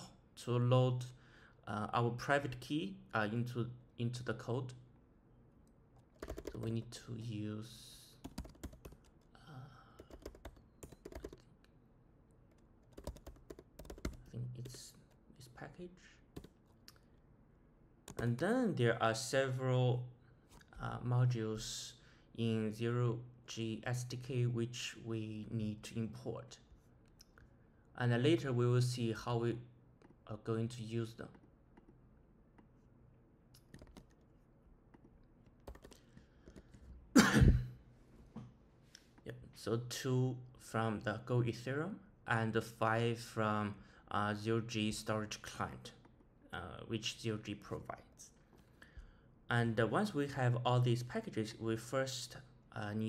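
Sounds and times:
typing on keyboard: 6.0s - 6.9s, 8.2s - 9.2s, 9.9s - 11.5s, 12.5s - 15.1s, 16.4s - 16.6s, 33.6s - 34.2s, 34.9s - 36.8s.

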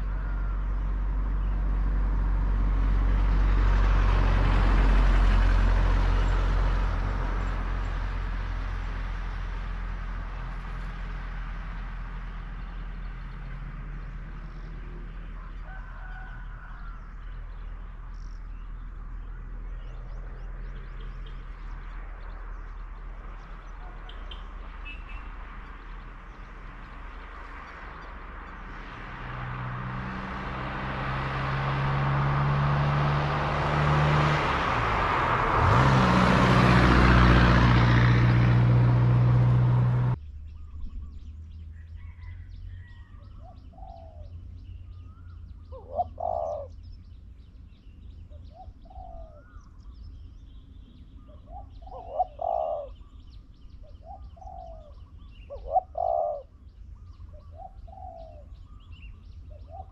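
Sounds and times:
doves cooing: 0.0s - 1.8s, 14.3s - 18.1s, 42.0s - 46.9s, 48.3s - 49.6s, 51.2s - 53.2s, 53.8s - 59.9s
vehicle engine: 0.0s - 59.9s.

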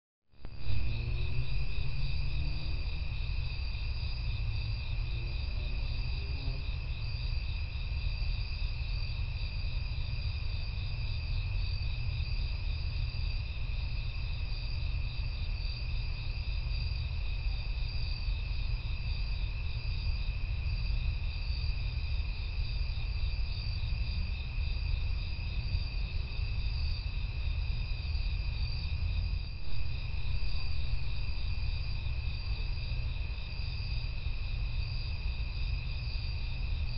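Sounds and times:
low rumble: 0.4s - 5.9s, 28.9s - 33.4s
crickets trilling: 0.4s - 36.9s.

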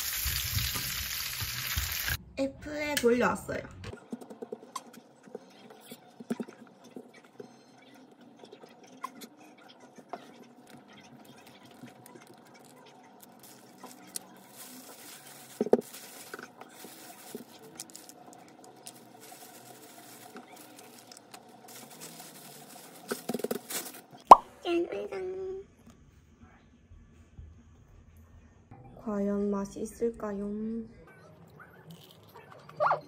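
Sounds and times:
plastic glove rustling: 11.2s - 24.3s.

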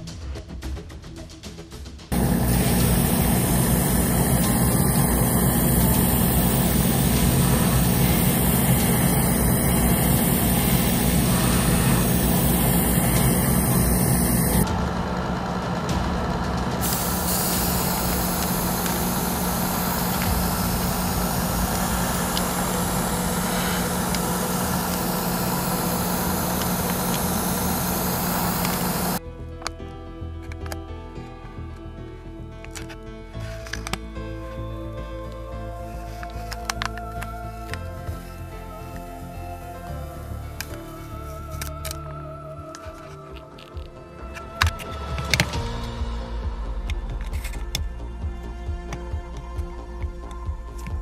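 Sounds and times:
airbrush hissing: 2.1s - 14.7s, 16.8s - 29.2s
fan motor hum: 2.1s - 29.2s.

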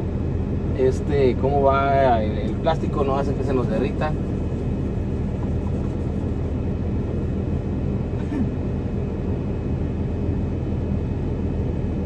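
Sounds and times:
microwave oven running: 0.0s - 12.0s.

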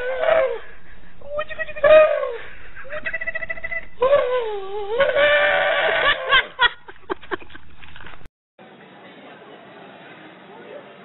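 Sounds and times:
camel calling: 0.0s - 6.5s.

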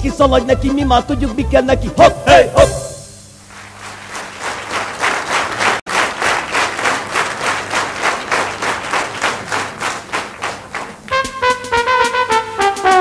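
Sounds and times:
audience clapping in rhythm: 3.4s - 13.0s.

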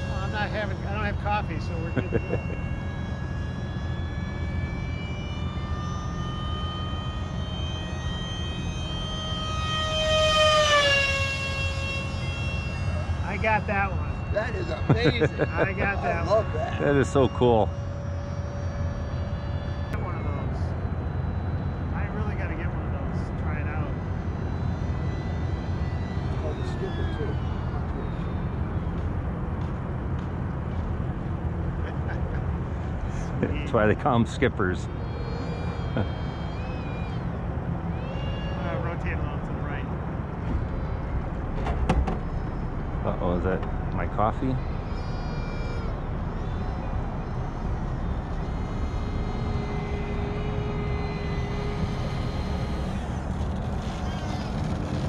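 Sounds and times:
model plane motor whining: 0.0s - 29.4s, 34.8s - 55.0s
low rumble: 39.0s - 55.0s.

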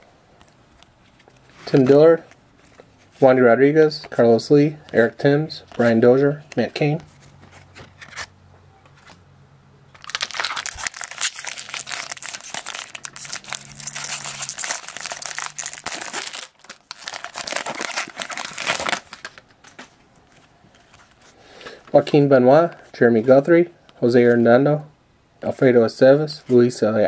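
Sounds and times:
foil wrapper crinkling and tearing: 10.0s - 19.5s.

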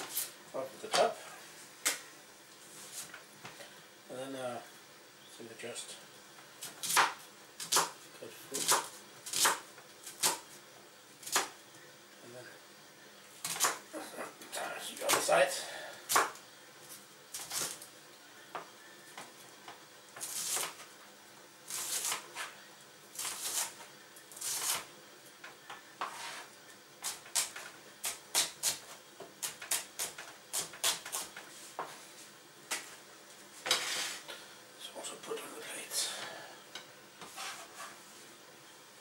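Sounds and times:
knife chopping onion on board: 6.6s - 8.0s, 8.6s - 10.4s, 16.1s - 16.4s, 27.0s - 31.9s
knife scraping board: 26.0s - 27.6s, 33.6s - 34.3s, 37.2s - 38.0s.

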